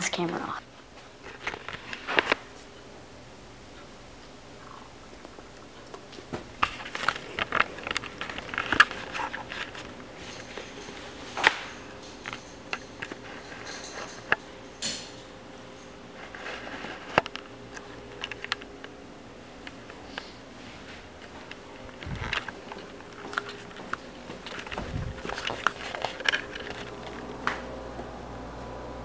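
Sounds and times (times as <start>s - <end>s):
faint steady hum: 0.0s - 29.0s
camera handling clicks and rustles: 6.6s - 9.9s, 17.0s - 18.7s, 21.2s - 27.3s.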